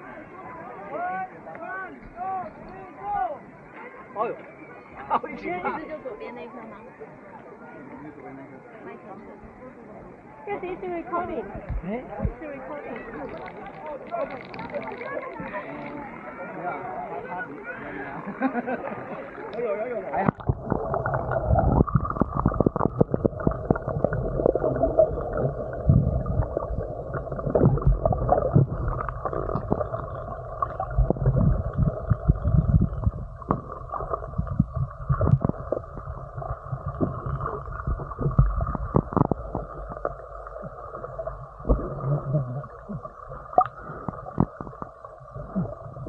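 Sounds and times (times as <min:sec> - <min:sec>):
low underwater rumble: 0:18.3 - 0:46.0
water sloshing and gurgling: 0:18.6 - 0:46.0.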